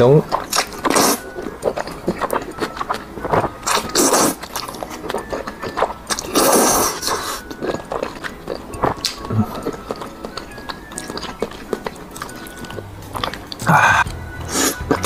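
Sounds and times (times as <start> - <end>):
chewing with lip smacks: 0.2 - 15.0
noodles slurped: 0.5 - 4.8, 5.4 - 10.1.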